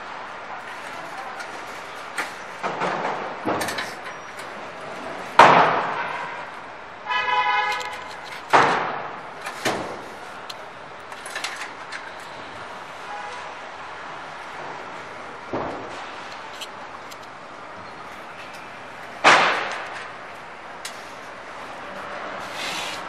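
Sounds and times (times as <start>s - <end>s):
metal knocks and clanks: 1.5s - 4.6s
vehicle horn: 5.8s - 8.1s, 13.0s - 13.7s.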